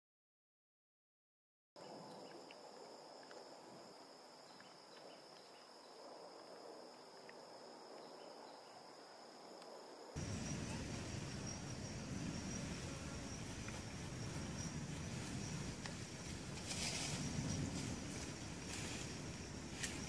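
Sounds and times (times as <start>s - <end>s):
low-pitched background noise: 1.8s - 20.0s
faint hiss: 5.5s - 20.0s
high-pitched insect drone: 10.2s - 20.0s.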